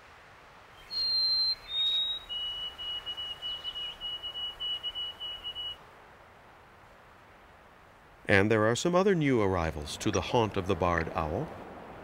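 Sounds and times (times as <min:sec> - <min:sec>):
songbird whistling song: 0:00.8 - 0:05.8.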